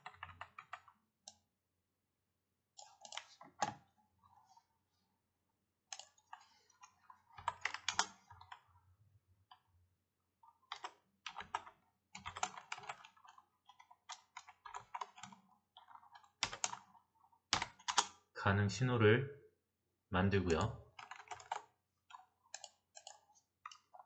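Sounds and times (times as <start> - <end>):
computer keyboard typing: 0.0 - 1.0, 2.8 - 3.8, 5.9 - 8.7, 10.7 - 18.2, 20.4 - 24.0.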